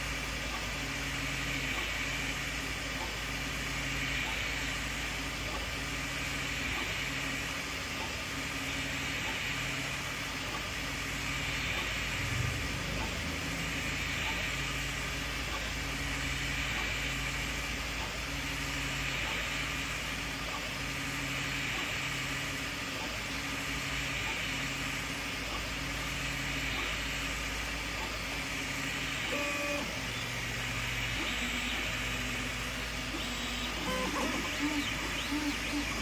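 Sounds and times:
stepper motors humming: 0.0s - 36.0s
fan whirring: 23.5s - 36.0s.

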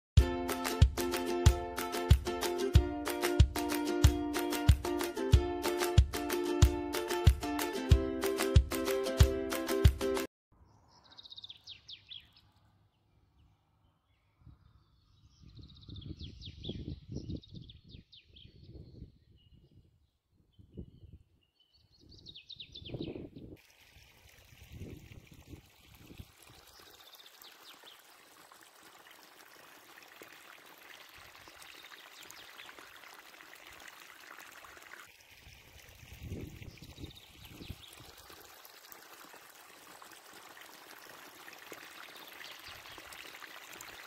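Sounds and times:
small birds chirping: 10.6s - 23.6s, 25.7s - 29.3s, 31.4s - 32.9s, 36.3s - 38.2s, 42.0s - 43.4s
flowing stream: 23.6s - 44.0s.

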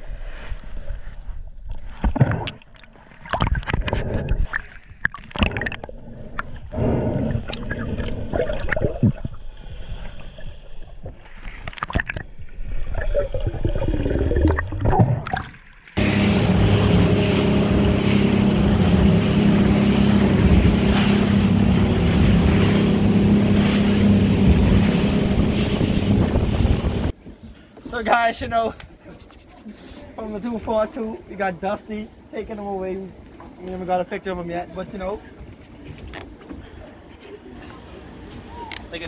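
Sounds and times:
water and wind noise: 0.0s - 39.0s
underwater clicks and bubbling: 1.6s - 16.0s
outboard engine drone: 16.0s - 27.2s.

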